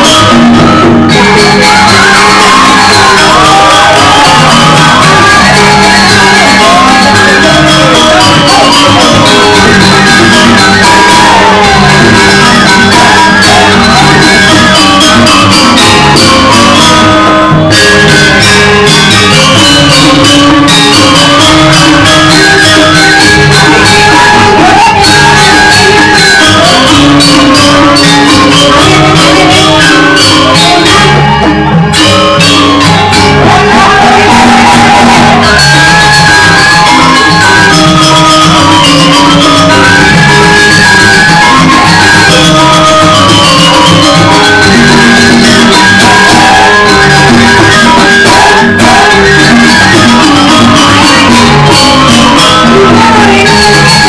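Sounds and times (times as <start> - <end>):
percussion dance music: 0.0 - 54.0
woman singing: 47.8 - 54.0.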